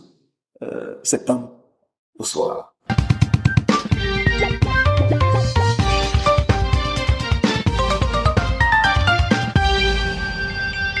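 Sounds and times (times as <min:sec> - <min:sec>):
instrumental jingle: 0:04.2 - 0:06.8.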